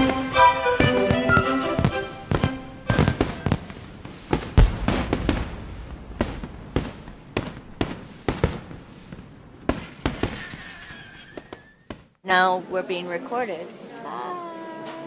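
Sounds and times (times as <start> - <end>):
firecrackers popping: 0.8 - 12.1.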